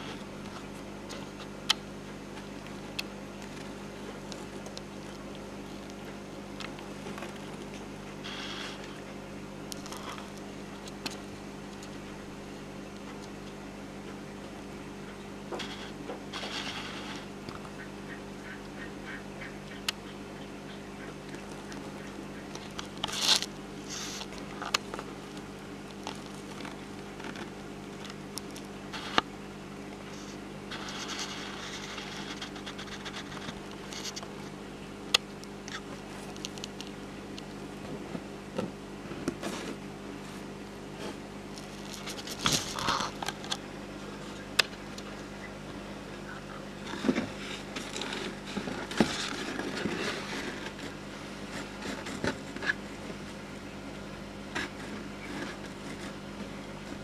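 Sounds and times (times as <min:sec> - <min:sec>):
steady low hum: 0:00.0 - 0:57.0
claws scratching on plastic: 0:22.6 - 0:28.2, 0:30.1 - 0:34.3.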